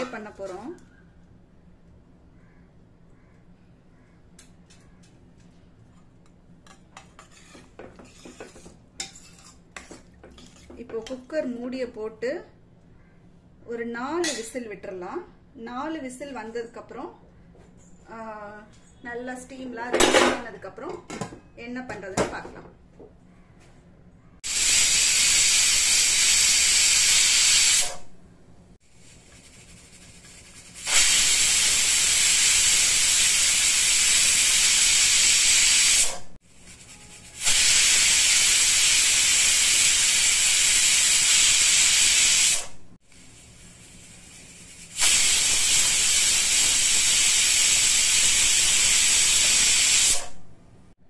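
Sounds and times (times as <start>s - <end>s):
pressure cooker whistling: 24.5s - 28.0s, 30.8s - 36.2s, 36.8s - 42.7s, 45.0s - 50.3s.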